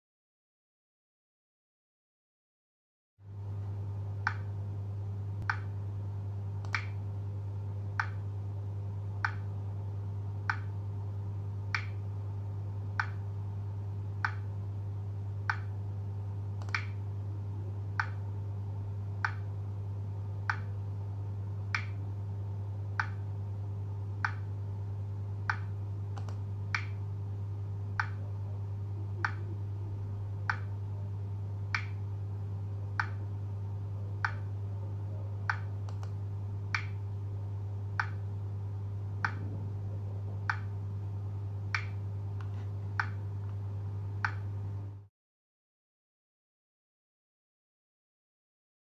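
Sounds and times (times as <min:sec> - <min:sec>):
steady low hum: 0:03.2 - 0:45.1
sharp metronome-like clicks: 0:04.2 - 0:04.5, 0:05.4 - 0:05.7, 0:06.6 - 0:07.0, 0:08.0 - 0:08.2, 0:09.2 - 0:09.5, 0:10.5 - 0:10.8, 0:11.7 - 0:12.0, 0:13.0 - 0:13.2, 0:14.2 - 0:14.5, 0:15.5 - 0:15.8, 0:16.6 - 0:17.0, 0:18.0 - 0:18.2, 0:19.2 - 0:19.5, 0:20.5 - 0:20.7, 0:21.7 - 0:22.0, 0:23.0 - 0:23.2, 0:24.2 - 0:24.5, 0:25.5 - 0:27.0, 0:28.0 - 0:28.2, 0:30.4 - 0:30.8, 0:31.7 - 0:32.0, 0:33.0 - 0:33.2, 0:34.2 - 0:34.5, 0:35.5 - 0:37.0, 0:38.0 - 0:38.2, 0:40.5 - 0:40.7, 0:41.7 - 0:42.0.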